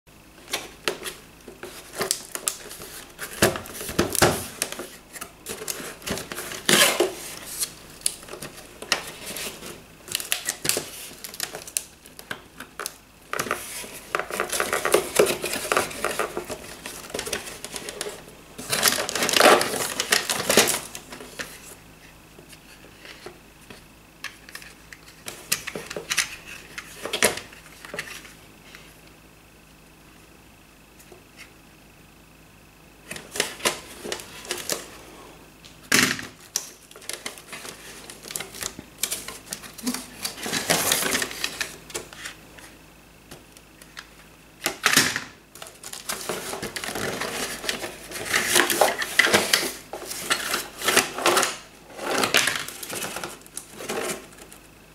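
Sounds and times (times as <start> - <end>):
packaging crinkly rustles: 0.4 - 21.8, 36.4 - 42.7, 45.5 - 54.7
cardboard scraping: 46.0 - 54.5.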